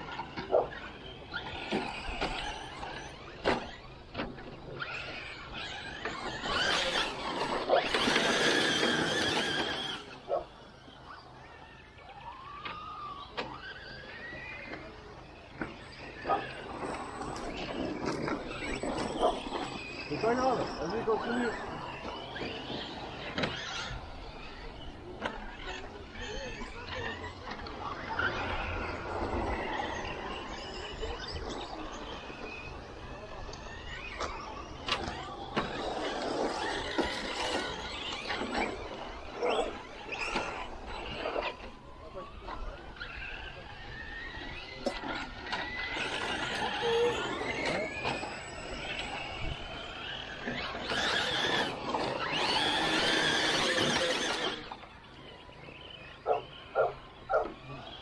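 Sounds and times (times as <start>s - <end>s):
electric motor whining: 0.0s - 58.0s.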